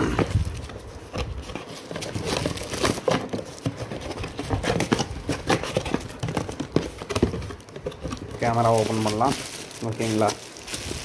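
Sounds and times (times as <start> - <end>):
cardboard packaging rustling: 0.0 - 11.0
plastic wrapping crinkling: 0.3 - 11.0.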